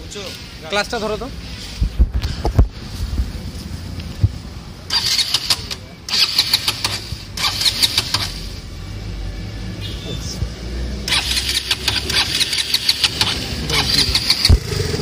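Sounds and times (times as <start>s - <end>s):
motorcycle engine idling: 11.1s - 15.0s.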